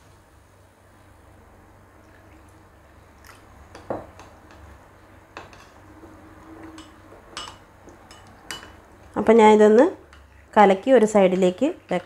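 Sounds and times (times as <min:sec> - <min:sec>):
metal spoon clinking ceramic bowl: 0:06.7 - 0:08.8.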